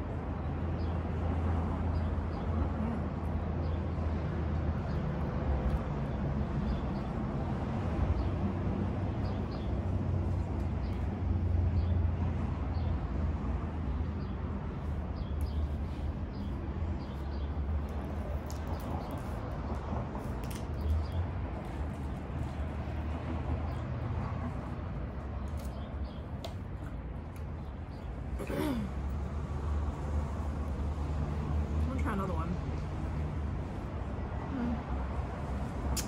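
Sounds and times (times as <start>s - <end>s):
low rumble of street traffic: 0.0s - 36.0s.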